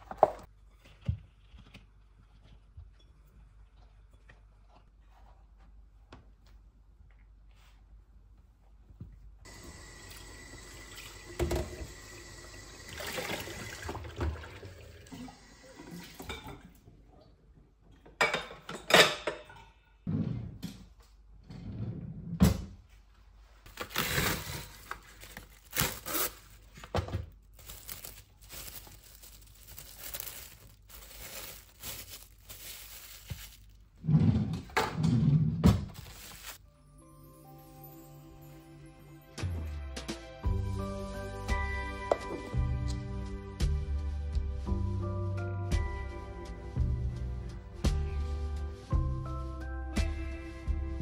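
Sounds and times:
water running from tap: 9.5s - 16.3s
cling film rustling and crinkling: 23.6s - 34.0s, 35.8s - 36.6s.

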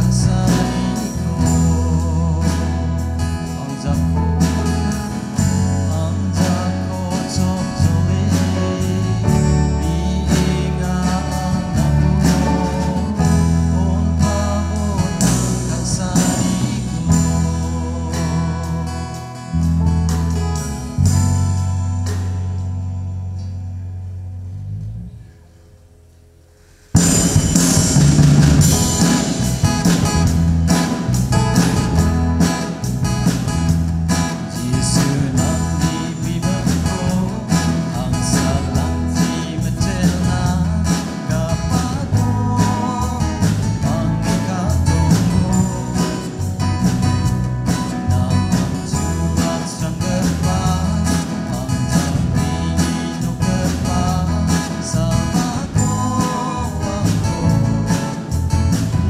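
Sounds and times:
man singing: 0.0s - 19.8s, 28.6s - 59.0s
drum kit steady beat: 0.0s - 22.6s, 27.0s - 59.0s
acoustic guitars strumming: 0.0s - 25.6s, 26.5s - 59.0s
keyboard: 0.0s - 59.0s.

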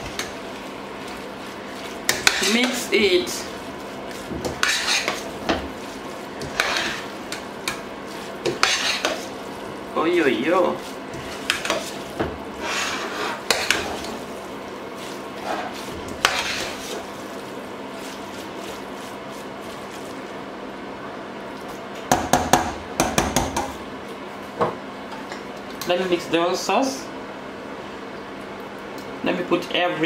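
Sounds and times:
metal spoon scraping pot: 4.5s - 5.2s, 8.5s - 9.2s.

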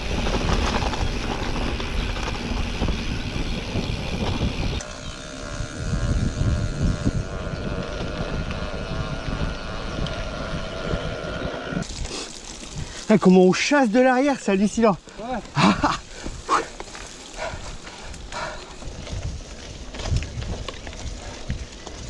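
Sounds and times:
wind rushing over microphone: 0.0s - 12.1s, 17.4s - 22.0s
bike rattling on rough ground: 0.0s - 22.0s.

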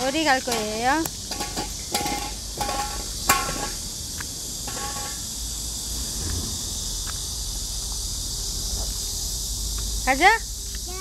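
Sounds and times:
insects chirring: 0.0s - 11.0s
toddler voice: 10.8s - 11.0s.

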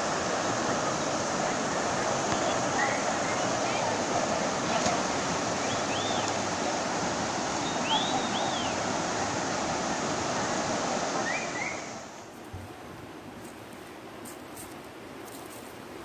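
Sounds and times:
river water flowing: 0.0s - 16.0s.

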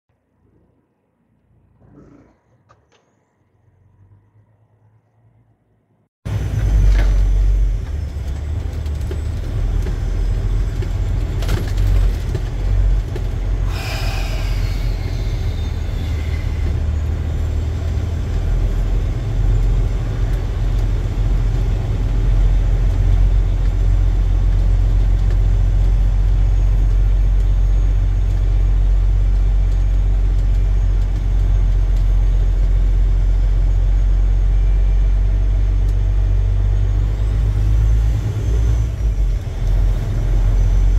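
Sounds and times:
truck engine and cab rumble: 6.3s - 40.9s
high falling squeal: 13.6s - 18.2s.

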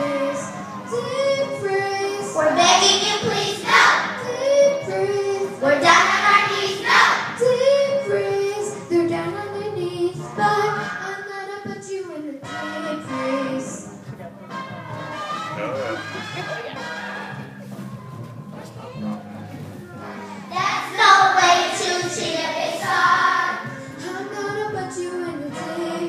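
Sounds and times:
young children singing: 0.0s - 13.8s, 20.4s - 26.0s.

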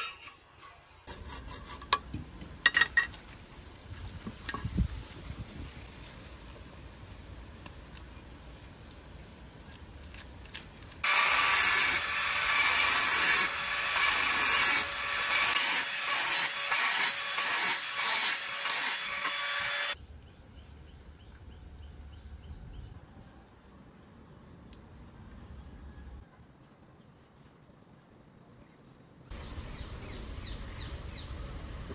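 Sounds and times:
tool scraping with high whine: 0.0s - 1.8s, 11.0s - 20.0s.

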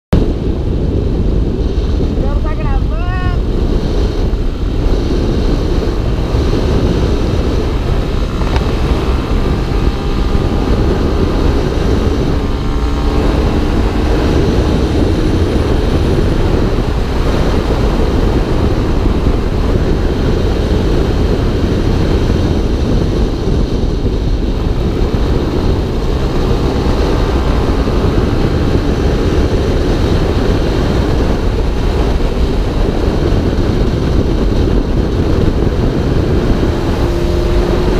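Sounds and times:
motorcycle engine: 0.1s - 37.9s
wind buffeting microphone: 0.1s - 37.9s.

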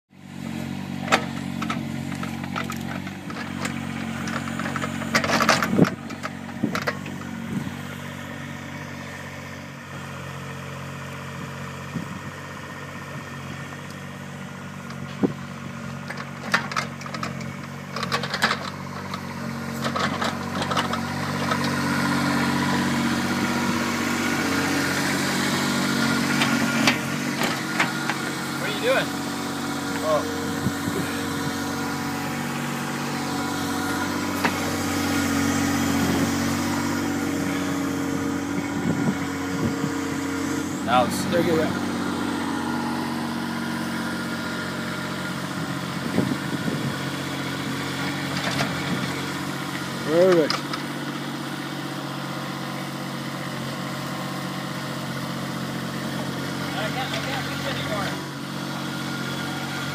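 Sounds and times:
diesel engine running: 0.1s - 59.9s.

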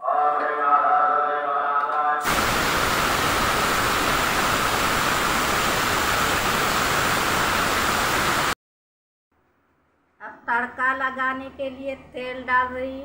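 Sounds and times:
steam hissing from pressure cooker: 2.2s - 8.6s.

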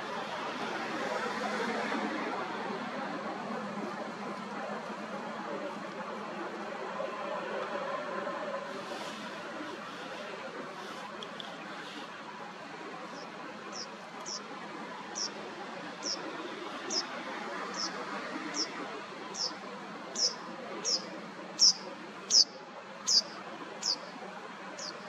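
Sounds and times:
steady background noise: 0.0s - 25.0s
bird calling high slurred note: 13.2s - 14.4s, 15.2s - 15.4s, 16.0s - 16.2s, 16.8s - 17.1s, 17.7s - 24.1s.

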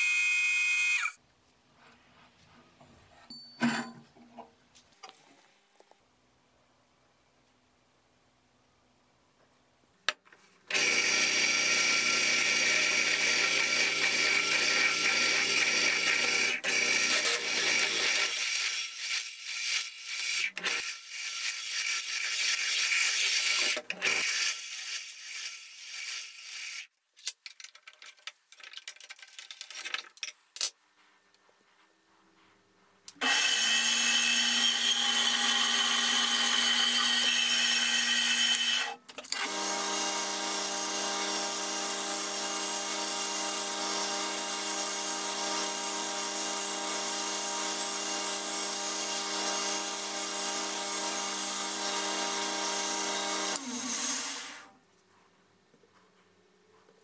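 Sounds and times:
bandsaw cutting wood: 10.7s - 26.9s, 33.2s - 54.7s.

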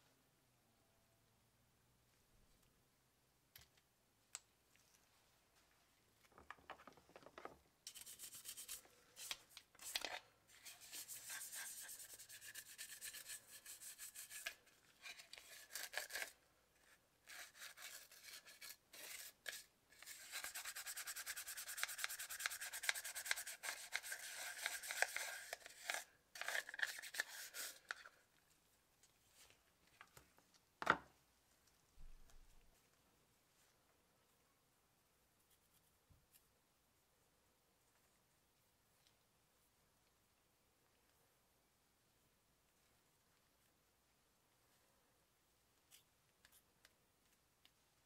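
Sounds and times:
toothbrush scrubbing plastic: 7.9s - 16.4s, 17.2s - 28.1s.

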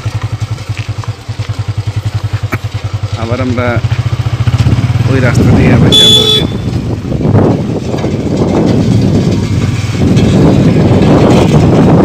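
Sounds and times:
motorcycle engine running: 0.0s - 12.0s
wind buffeting microphone: 4.0s - 12.0s.

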